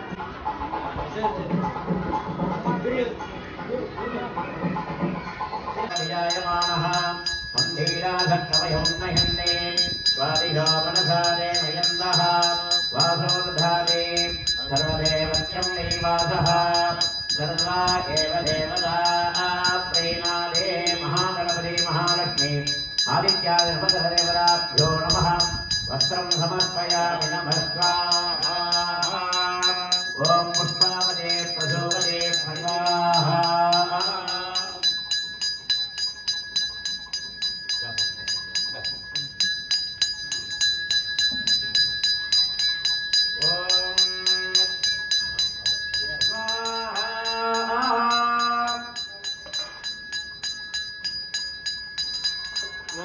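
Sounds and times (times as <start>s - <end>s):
man chanting: 5.9s - 35.0s, 43.4s - 44.9s, 46.0s - 49.1s
ritual bell ringing: 5.9s - 53.0s.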